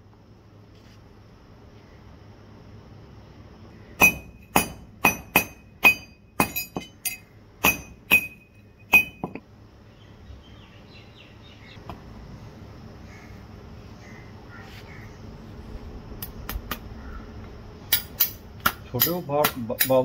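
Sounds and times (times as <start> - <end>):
hammer striking steel horseshoe: 4.0 - 9.4, 17.9 - 20.0.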